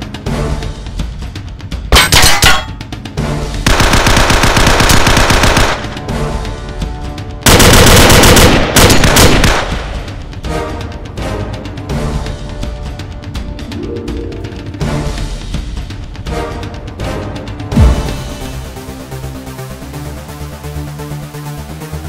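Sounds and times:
background music: 0:00.0 - 0:22.0
automatic gunfire: 0:03.7 - 0:06.0, 0:07.5 - 0:09.9.

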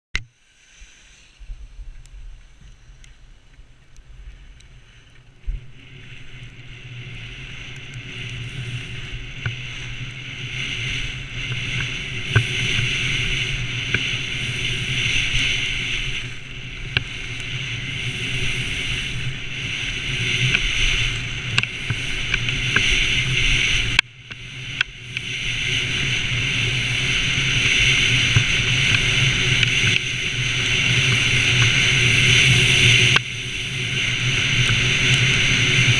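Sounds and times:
skis scraping on snow: 0:00.4 - 0:35.9
wind on microphone: 0:00.8 - 0:35.9.

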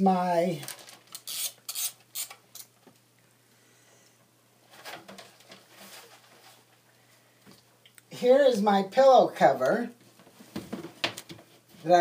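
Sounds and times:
faint rustling and handling: 0:04.6 - 0:07.8, 0:09.4 - 0:12.0.

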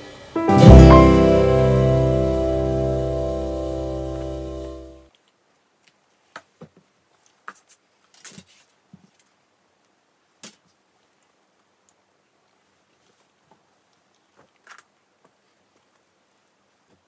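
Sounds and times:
clothes rustling and tapping: 0:06.2 - 0:09.4, 0:12.9 - 0:16.1.

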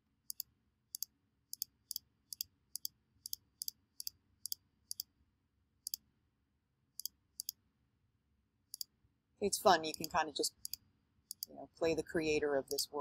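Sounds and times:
computer mouse clicks: 0:00.3 - 0:05.1, 0:07.0 - 0:07.6, 0:09.9 - 0:11.5, 0:12.6 - 0:12.9.

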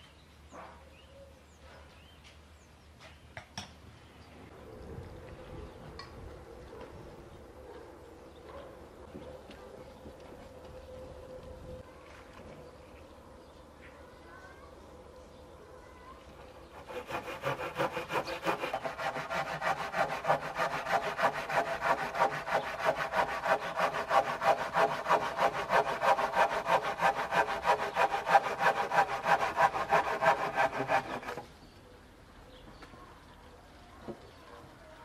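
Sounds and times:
hand saw cutting wood: 0:16.6 - 0:31.5.

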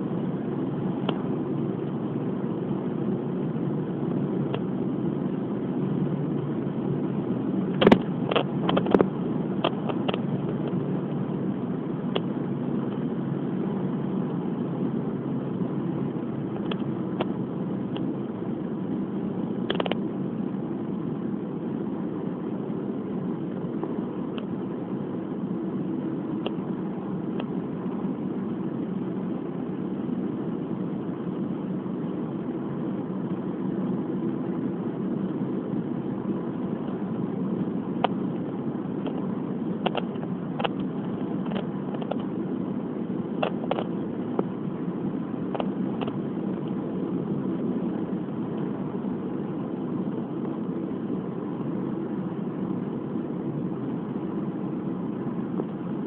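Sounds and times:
car engine and tyre noise: 0:00.0 - 0:56.0.

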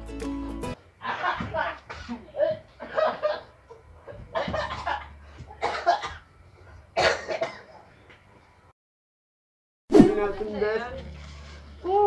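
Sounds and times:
person coughing and sputtering: 0:05.6 - 0:06.2, 0:07.0 - 0:07.7.

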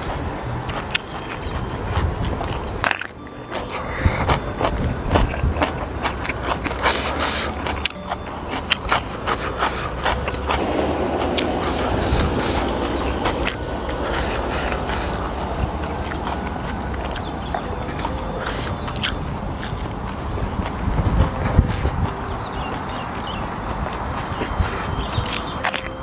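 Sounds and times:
person chewing: 0:00.0 - 0:26.0
low rumble: 0:10.0 - 0:22.1.

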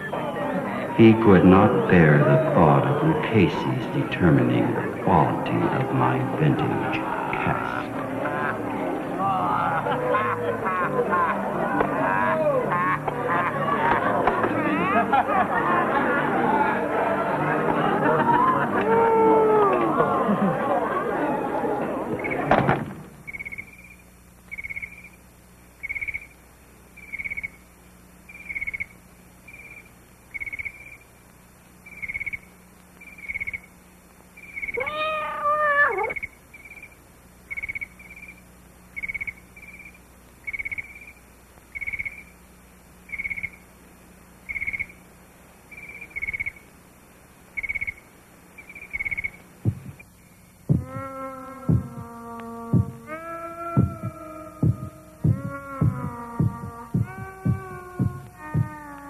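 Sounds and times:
faint low hum: 0:00.0 - 0:59.0
cat meowing: 0:34.7 - 0:36.2.

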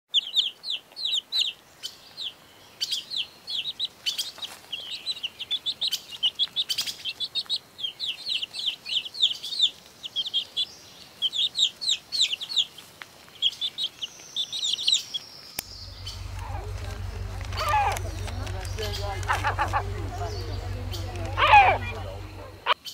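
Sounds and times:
chicks peeping: 0:13.4 - 0:22.8.

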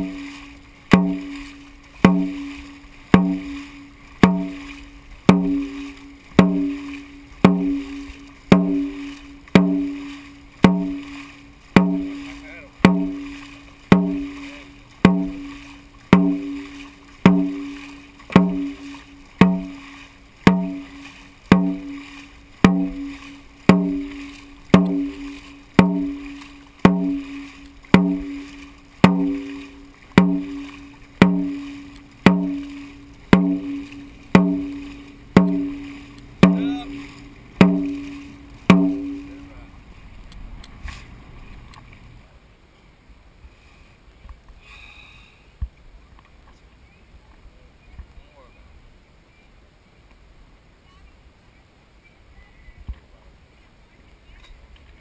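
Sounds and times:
drum beating: 0:00.0 - 0:00.3, 0:00.9 - 0:39.6.

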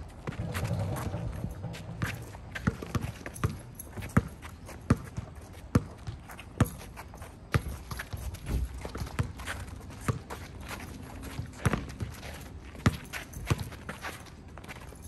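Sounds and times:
basketball bouncing on hard court: 0:00.2 - 0:06.9, 0:07.5 - 0:10.3, 0:11.4 - 0:12.2, 0:12.8 - 0:13.7.

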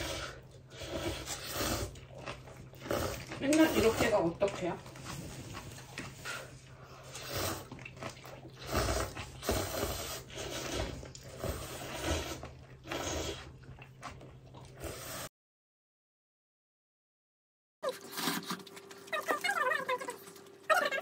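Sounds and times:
person chewing: 0:00.0 - 0:15.2.

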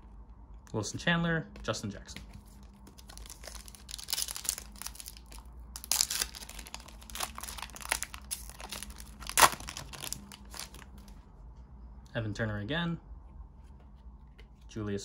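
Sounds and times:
cards rustling: 0:01.6 - 0:11.2
wrapper crinkling: 0:02.5 - 0:11.2.

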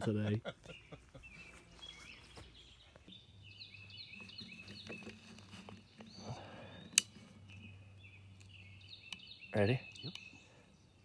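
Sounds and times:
small birds chirping: 0:00.1 - 0:11.0.

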